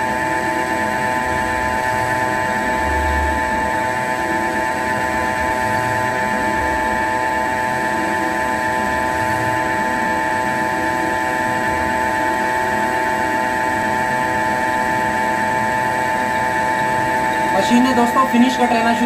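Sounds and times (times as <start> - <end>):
lathe spindle whine: 0.0 - 19.0.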